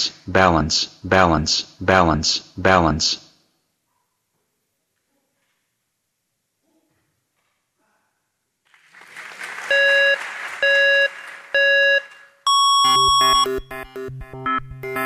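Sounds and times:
background hiss: 0:00.0 - 0:13.3
long higher beep: 0:09.7 - 0:13.8
short electronic beeps: 0:09.8 - 0:13.7
music with a beat: 0:12.8 - 0:15.0.

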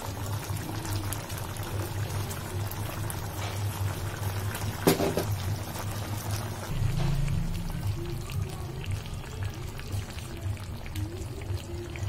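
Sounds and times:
curry simmering in a pan: 0:00.0 - 0:12.0
sharp knock: 0:04.8 - 0:05.3.

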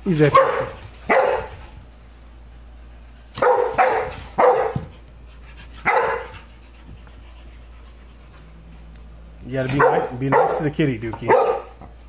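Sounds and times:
young dog barking: 0:00.3 - 0:01.5, 0:03.4 - 0:04.9, 0:05.8 - 0:06.4, 0:09.7 - 0:10.7, 0:11.3 - 0:11.8.

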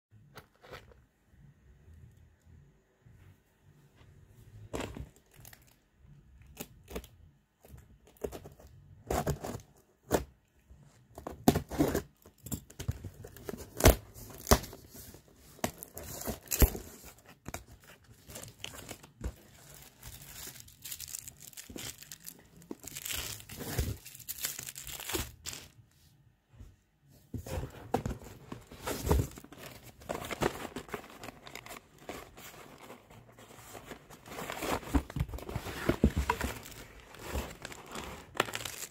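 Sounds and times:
plastic wrap crinkling: 0:17.8 - 0:25.8, 0:36.2 - 0:38.9.

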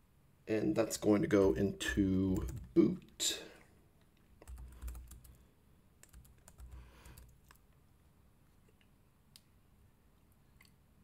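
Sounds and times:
faint keyboard keystrokes: 0:04.4 - 0:05.4.

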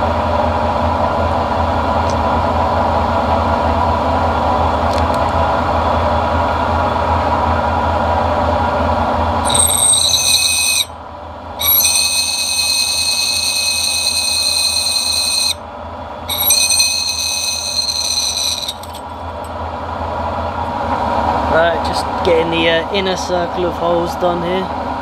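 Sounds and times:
drill bit squealing through steel: 0:09.4 - 0:10.9, 0:11.6 - 0:15.6, 0:16.3 - 0:19.5
milling machine motor hum: 0:09.4 - 0:10.9, 0:11.6 - 0:15.6, 0:16.3 - 0:19.5.

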